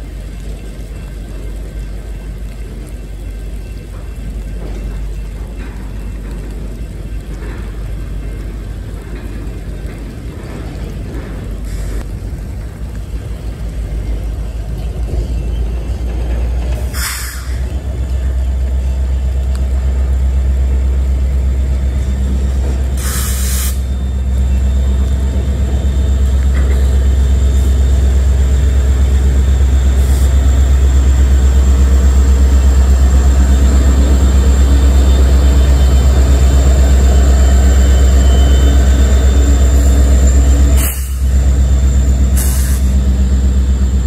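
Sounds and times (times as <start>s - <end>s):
diesel locomotive engine drone: 0.0s - 44.0s
rail cars rumbling by: 0.0s - 44.0s
short burst of hiss: 17.0s - 17.6s, 23.0s - 23.8s.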